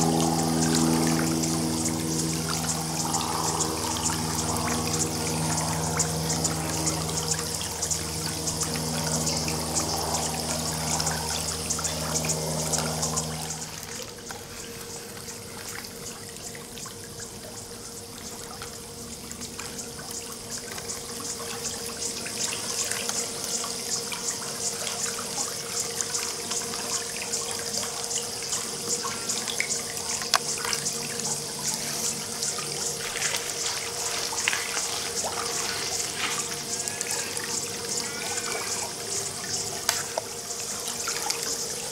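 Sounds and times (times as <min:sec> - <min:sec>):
low machine hum: 0:00.0 - 0:41.9
water trickling: 0:00.0 - 0:41.9.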